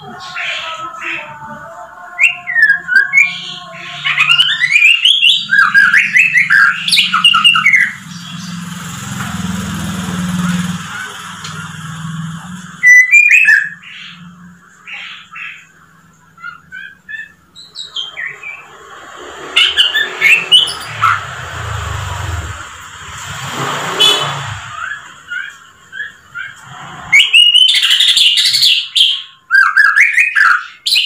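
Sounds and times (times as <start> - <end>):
bird singing whistled notes: 2.2 - 8.6, 12.8 - 14.3, 27.2 - 31.0.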